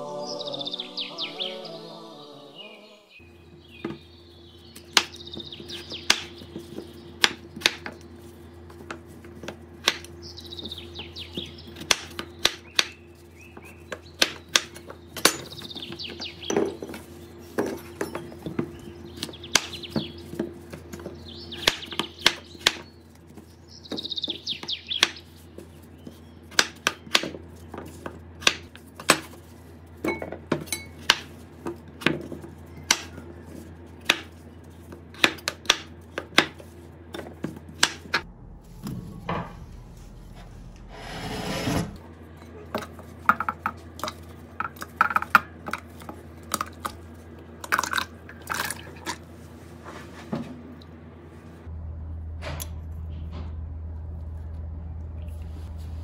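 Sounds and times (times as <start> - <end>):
bird chirps: 0.0 - 8.5, 10.1 - 20.4, 21.0 - 27.1
utensils clinking against dishes: 30.0 - 31.1.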